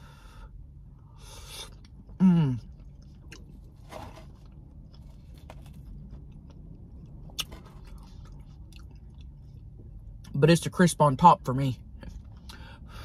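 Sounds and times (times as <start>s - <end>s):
low steady hum: 0.0s - 13.0s
person chewing: 1.2s - 10.3s.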